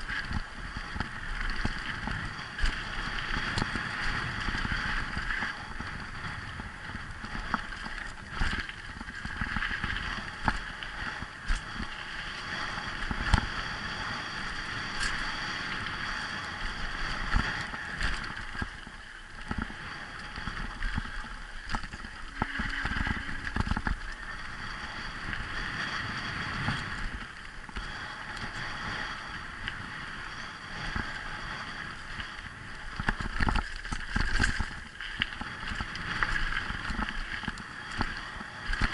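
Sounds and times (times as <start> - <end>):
tyre noise and wind rushing: 0.0 - 38.9
bike knocking and rattling: 7.0 - 11.9, 17.3 - 24.3.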